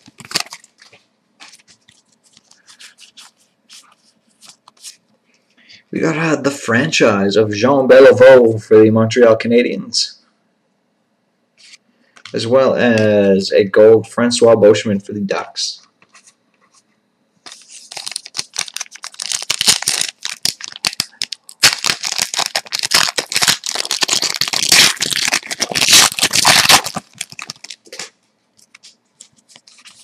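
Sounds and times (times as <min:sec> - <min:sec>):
foil wrapper crinkling and tearing: 0:00.0 - 0:05.0, 0:17.5 - 0:30.0.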